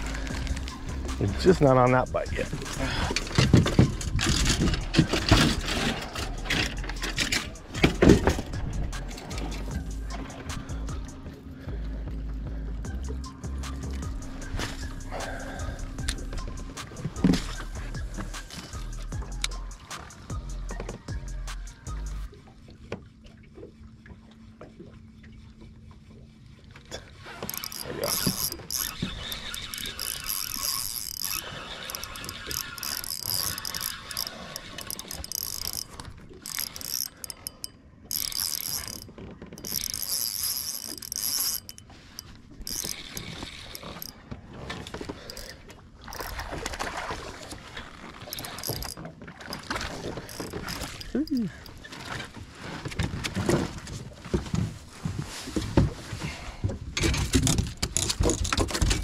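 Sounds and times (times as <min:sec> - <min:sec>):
fishing reel cranking: 0:00.0 - 0:11.1, 0:13.7 - 0:20.3, 0:27.3 - 0:46.9, 0:47.9 - 0:52.1.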